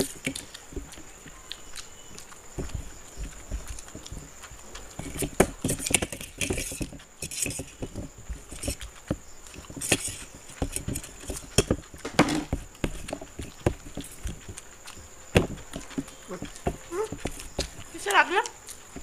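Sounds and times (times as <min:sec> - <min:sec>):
wet chewing and slurping: 0:00.0 - 0:19.0
fingers scraping metal plates: 0:05.0 - 0:14.6.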